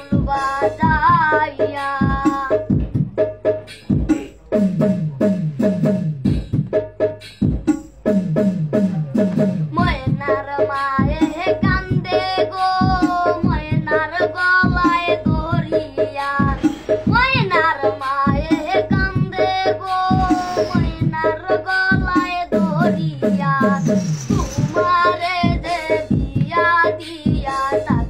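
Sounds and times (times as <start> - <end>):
boy singing in a high voice: 0.0 - 2.8, 9.7 - 28.0
low percussion beat: 2.0 - 10.4, 14.6 - 21.2, 21.9 - 26.6.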